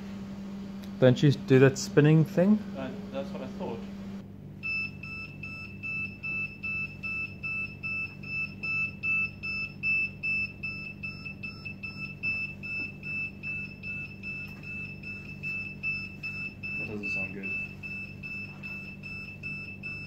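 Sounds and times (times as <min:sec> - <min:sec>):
electronic warning beeps: 0:04.6 - 0:20.0.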